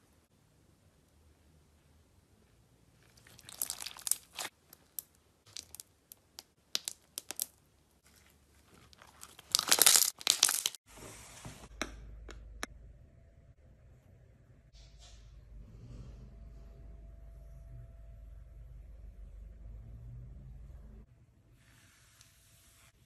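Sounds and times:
slime crackling and popping: 3.0s - 10.8s.

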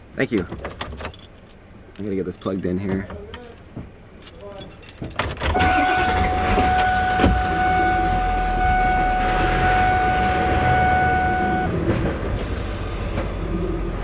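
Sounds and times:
car engine idling: 5.5s - 11.8s
steady electronic tone: 5.6s - 11.8s.

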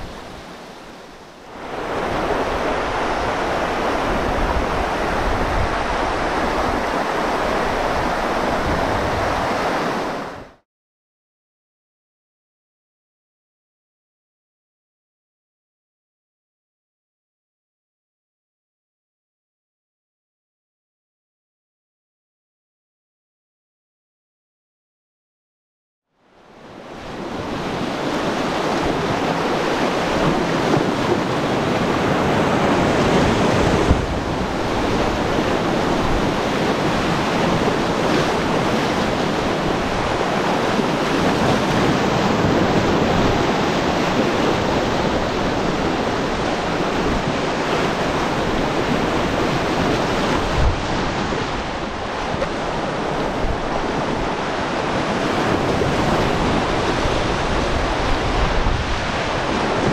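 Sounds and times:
whitewater river rushing: 0.0s - 10.5s, 27.1s - 59.9s.

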